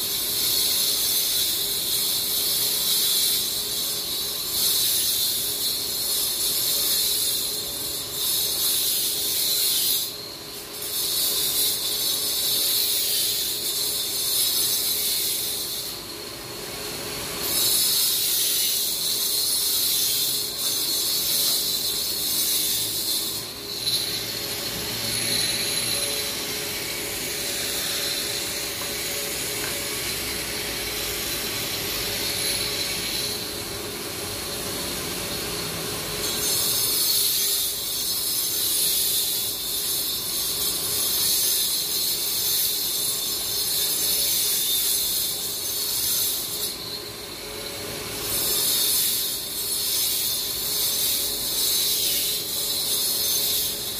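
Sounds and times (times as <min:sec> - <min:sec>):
power cutter grinding road surface: 0:17.6 - 0:39.7.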